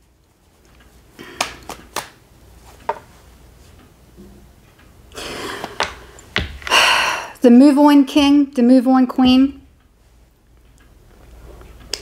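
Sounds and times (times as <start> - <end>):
cards clicking: 1.3 - 2.2.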